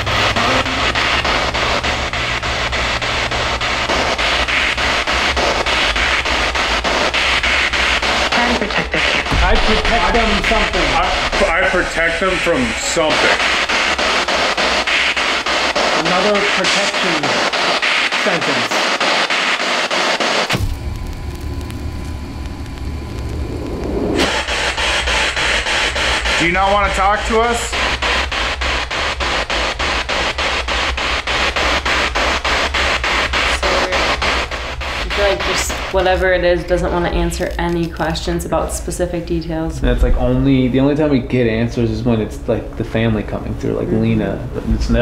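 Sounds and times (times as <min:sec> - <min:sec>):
radio static with rapid clicks: 0:00.0 - 0:40.4
low rumble: 0:09.2 - 0:14.2, 0:20.6 - 0:26.1, 0:39.3 - 0:41.0
faint steady hum: 0:20.5 - 0:26.4.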